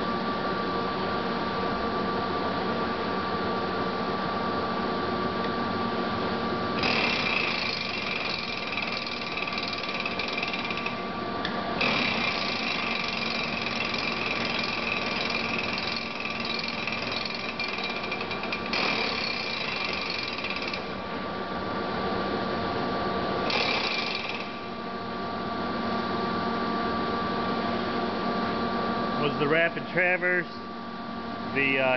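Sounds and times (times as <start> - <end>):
lathe carriage rattle and whine: 6.8 - 21.0.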